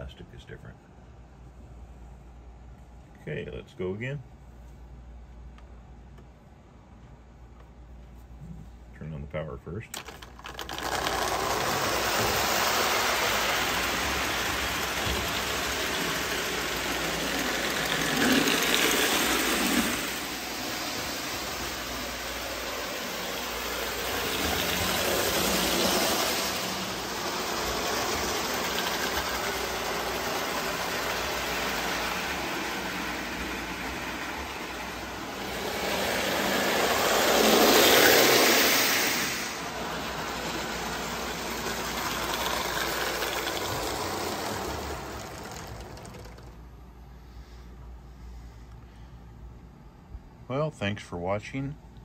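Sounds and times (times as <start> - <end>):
toy train motor whir: 10.0 - 46.6
wheels rumbling on metal rails: 10.0 - 46.7.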